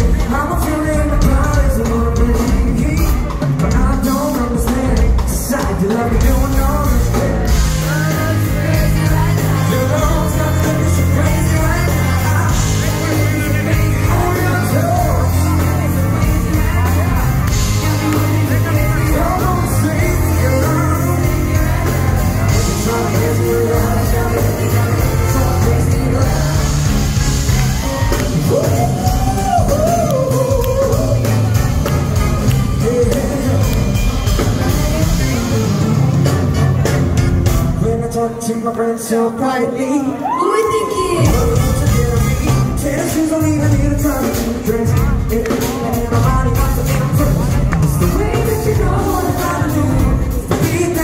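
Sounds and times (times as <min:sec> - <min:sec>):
man singing: 0:00.0 - 0:37.0, 0:37.7 - 0:51.0
live rock-pop band playing: 0:00.0 - 0:51.0.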